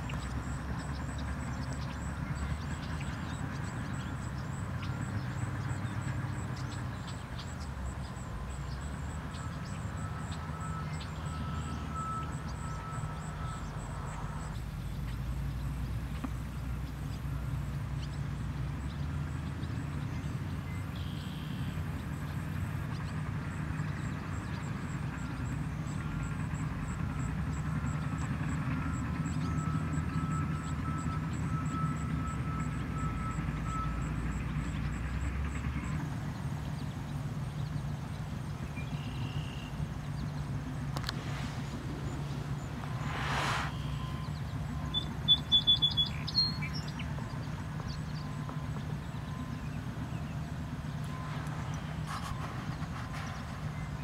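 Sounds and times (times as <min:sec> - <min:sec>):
steady low rumble: 0:39.8 - 0:45.6.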